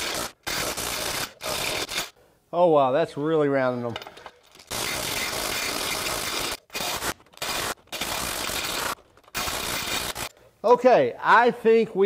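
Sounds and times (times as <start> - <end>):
impact wrench hammering: 4.0 - 10.3.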